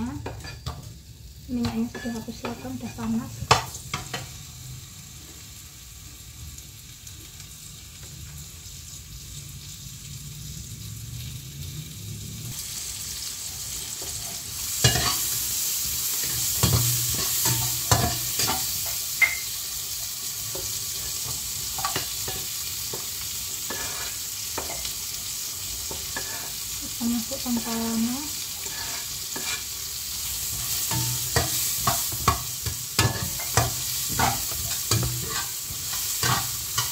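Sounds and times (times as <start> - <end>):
oil sizzling in a frying pan: 0.0 - 36.9
spatula scraping a pan: 14.0 - 15.5, 20.5 - 24.9, 25.9 - 26.6, 28.5 - 29.8, 30.4 - 36.9.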